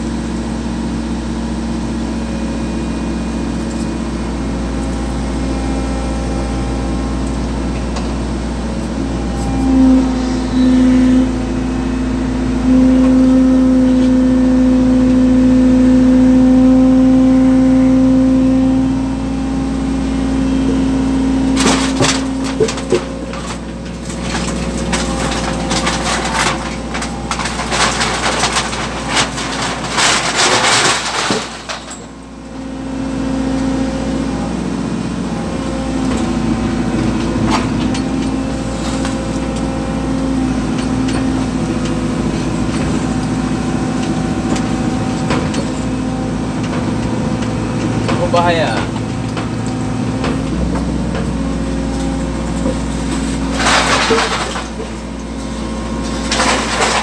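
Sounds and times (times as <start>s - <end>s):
excavator engine humming: 0.0s - 57.0s
clattering and knocking: 21.6s - 32.1s, 53.6s - 55.0s.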